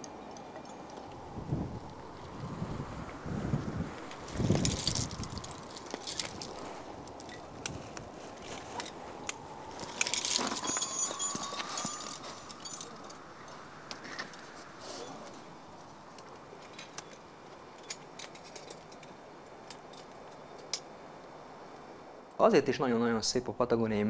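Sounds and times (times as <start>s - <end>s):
climbing gear clinking: 0.0s - 1.3s, 4.1s - 15.1s, 16.6s - 20.8s
faint hiss: 0.0s - 24.0s.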